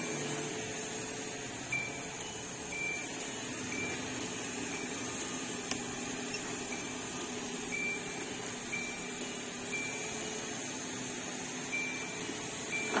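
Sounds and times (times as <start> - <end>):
warning chime beeping: 0.0 - 0.4, 1.7 - 5.4, 6.3 - 10.3, 11.7 - 13.0
steady hum: 0.0 - 10.6, 11.7 - 13.0.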